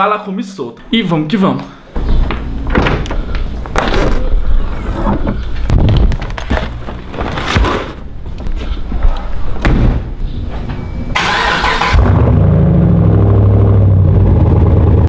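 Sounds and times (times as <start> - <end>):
car engine starting and idling: 11.1 - 15.0.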